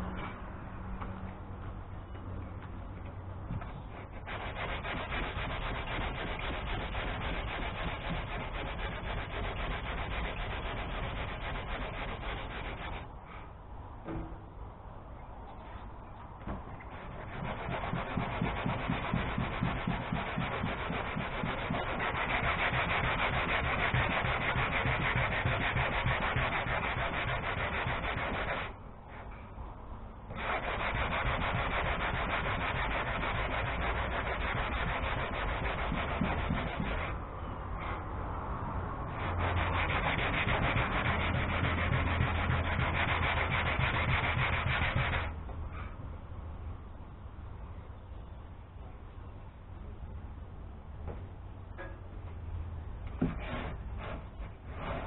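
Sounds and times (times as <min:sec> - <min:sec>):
sandpaper rasping on fiberglass: 0:03.5 - 0:13.1, 0:16.8 - 0:29.3, 0:30.3 - 0:37.2, 0:39.0 - 0:45.4, 0:53.2 - 0:55.0.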